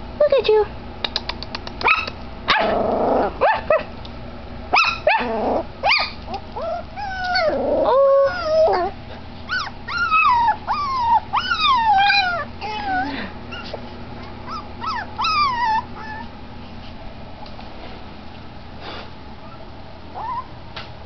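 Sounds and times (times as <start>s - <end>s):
puppy yipping: 1.8s - 2.7s, 4.7s - 7.6s, 9.5s - 13.8s, 14.4s - 16.3s, 20.2s - 20.5s
puppy whimpering: 4.8s - 13.8s, 14.4s - 16.3s, 19.4s - 20.5s.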